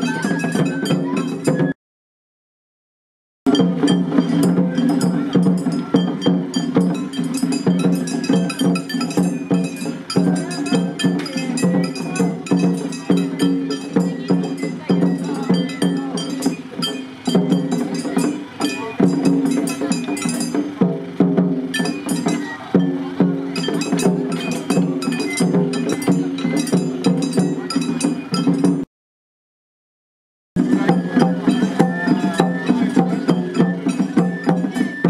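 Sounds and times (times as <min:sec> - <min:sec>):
small metal gong clanking: 0:03.5 - 0:28.8
rapid drum strikes: 0:03.5 - 0:28.9, 0:30.6 - 0:35.0.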